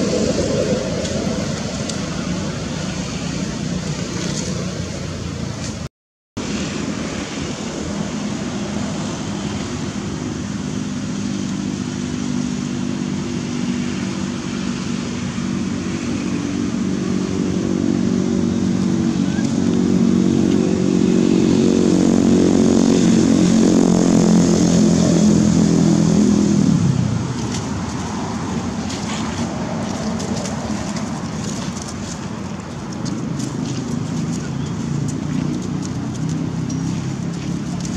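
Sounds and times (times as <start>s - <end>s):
vehicle engine running: 15.9s - 37.9s.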